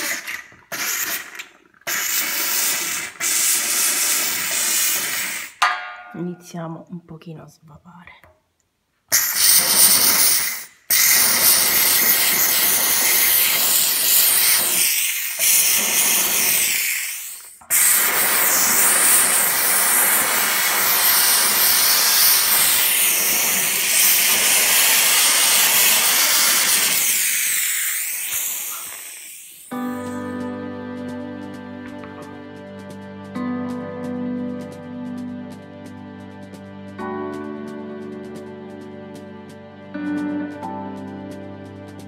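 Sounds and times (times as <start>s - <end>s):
steam cleaner hissing: 0.0s - 5.6s, 9.1s - 30.6s.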